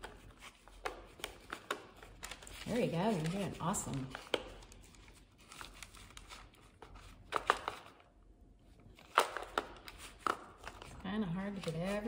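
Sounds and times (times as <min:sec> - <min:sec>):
plastic parts rustling and crinkling: 0:00.0 - 0:08.1.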